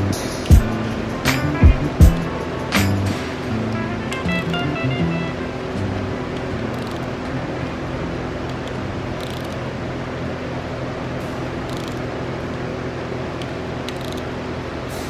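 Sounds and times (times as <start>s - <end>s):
steady background hum: 0.0s - 15.0s
ratchet clicks: 6.6s - 7.2s, 8.4s - 9.7s, 11.6s - 12.2s, 13.4s - 14.4s.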